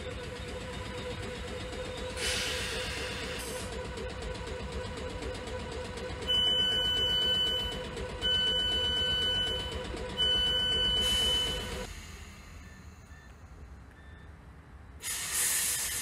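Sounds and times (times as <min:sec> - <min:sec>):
train hum: 0:00.0 - 0:16.0
door warning beeps: 0:06.2 - 0:11.9.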